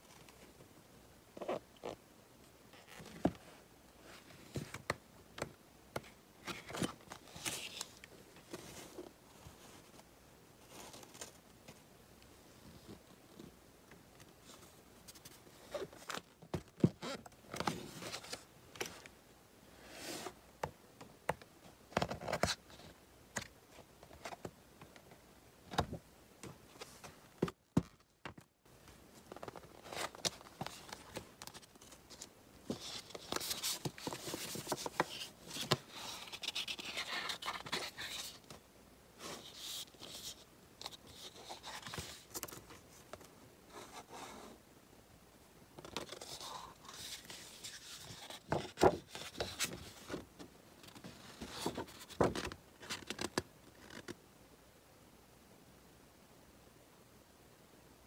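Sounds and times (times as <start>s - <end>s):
cardstock rustling and scraping: 29.4s - 38.6s, 39.2s - 44.5s, 45.8s - 53.3s.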